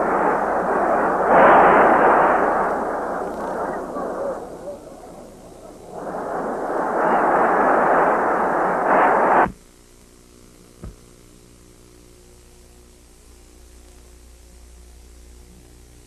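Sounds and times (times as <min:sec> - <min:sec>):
stadium crowd roaring: 0:00.0 - 0:09.2
low steady hum: 0:00.0 - 0:16.0.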